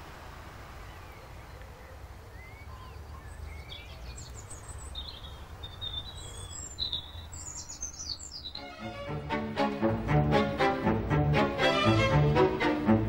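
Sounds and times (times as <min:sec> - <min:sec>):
birds chirping and singing: 0:00.8 - 0:09.6.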